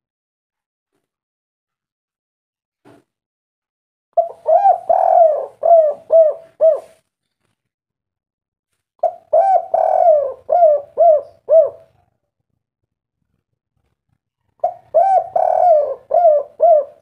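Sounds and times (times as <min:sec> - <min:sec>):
dove cooing: 0:04.2 - 0:07.0, 0:09.0 - 0:12.0, 0:14.6 - 0:17.0.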